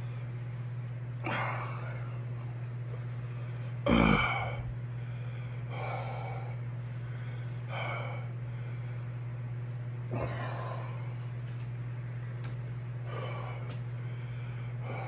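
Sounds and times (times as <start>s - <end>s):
man breathing hard: 3.2s - 9.2s, 10.1s - 11.4s, 13.0s - 15.0s.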